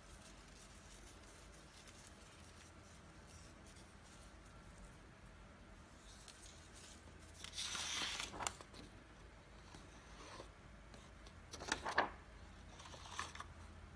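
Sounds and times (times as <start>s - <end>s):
paper sheet crinkling: 0.0s - 5.0s, 5.9s - 9.0s, 11.5s - 12.2s
rustling of handled material: 0.0s - 13.6s.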